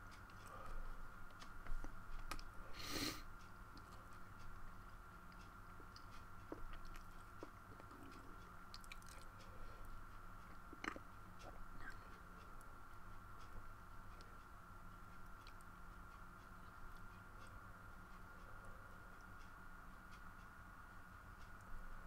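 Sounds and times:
electrical hum: 0:00.0 - 0:22.0
faint clicks and taps: 0:00.1 - 0:02.6.

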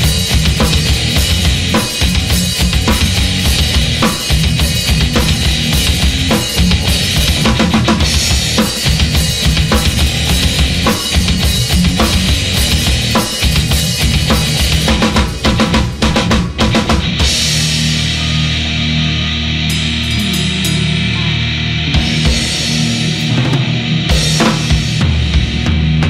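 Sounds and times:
drum kit pounding: 0:00.0 - 0:26.0
heavy metal band playing: 0:00.0 - 0:26.0
held guitar chord ringing: 0:17.2 - 0:25.1.

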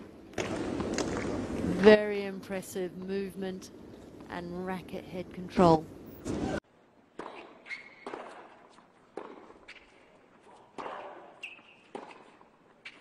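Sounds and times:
shoe squeaks: 0:07.2 - 0:08.5, 0:09.7 - 0:13.0
tennis ball bounces: 0:07.2 - 0:13.0
tennis racket strikes: 0:07.2 - 0:13.0.

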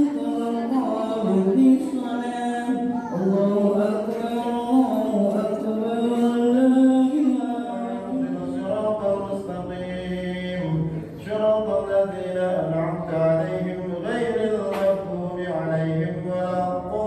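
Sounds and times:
person chanting unaccompanied: 0:00.0 - 0:17.0.

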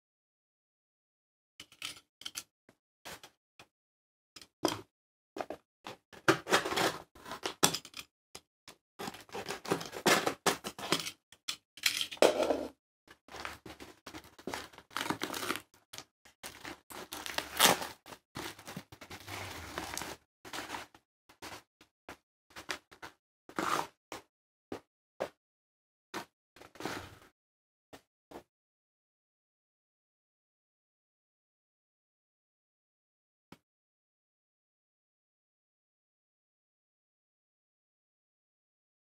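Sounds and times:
plastic mailer crinkling and tearing: 0:14.2 - 0:15.7, 0:16.4 - 0:20.8.

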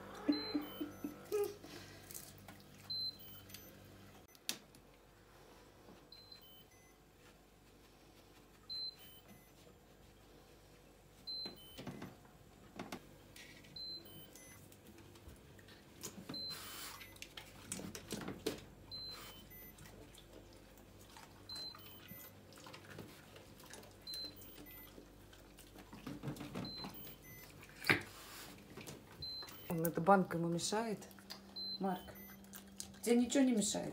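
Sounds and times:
fridge door alarm beeps: 0:00.1 - 0:01.4, 0:02.9 - 0:04.4, 0:06.1 - 0:07.0, 0:08.7 - 0:09.6, 0:11.3 - 0:12.2, 0:13.8 - 0:14.6, 0:16.3 - 0:17.2, 0:18.9 - 0:19.8, 0:21.5 - 0:22.4, 0:24.0 - 0:25.0, 0:26.6 - 0:27.6, 0:29.2 - 0:29.9, 0:31.6 - 0:32.5.

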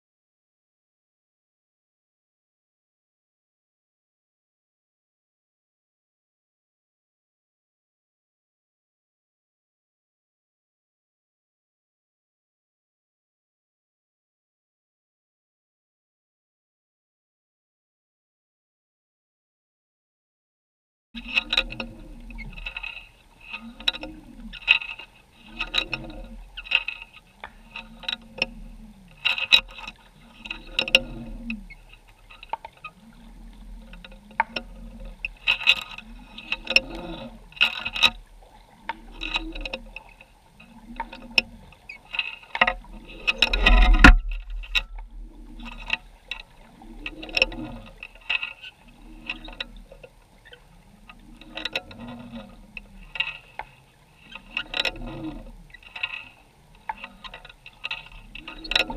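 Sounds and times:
low underwater swell: 0:21.2 - 0:58.9
underwater clicks and knocks: 0:21.2 - 0:58.9
loud underwater thump: 0:43.7 - 0:45.1.

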